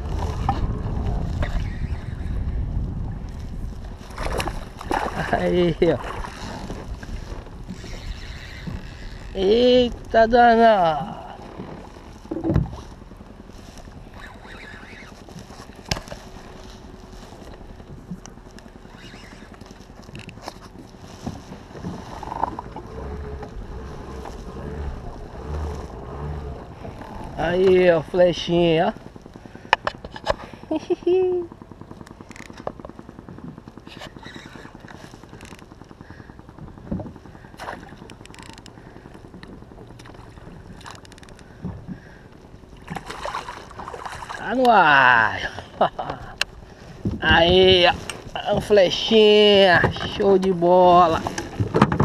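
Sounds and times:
wind noise: 0.0 - 12.9, 46.6 - 52.0
low rumble: 0.0 - 52.0.

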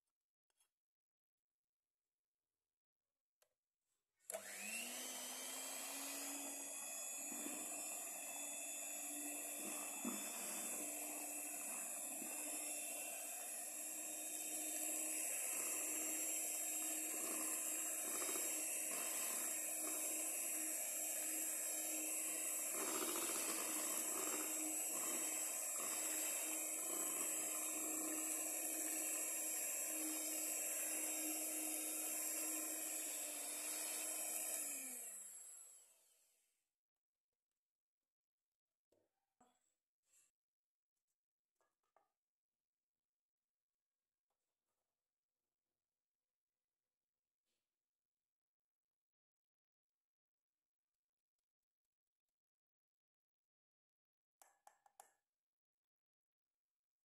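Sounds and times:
electric hand mixer whining: 4.3 - 35.9.

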